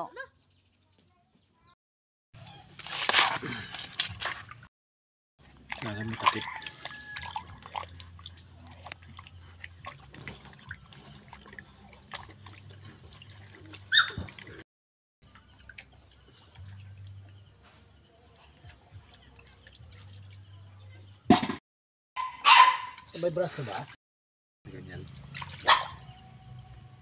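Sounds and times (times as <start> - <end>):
water sloshing and splashing: 2.7 - 4.7, 5.4 - 14.6, 15.2 - 17.2, 24.8 - 26.1
hands scrubbing in water: 5.4 - 14.6.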